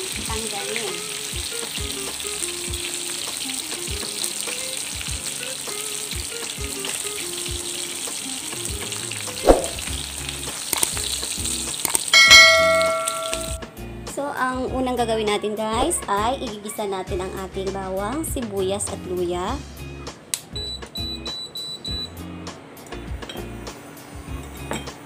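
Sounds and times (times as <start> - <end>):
fish sizzling in hot oil: 0.0 - 13.6
sharp knock: 9.4 - 9.8
bell-like chime: 12.2 - 13.6.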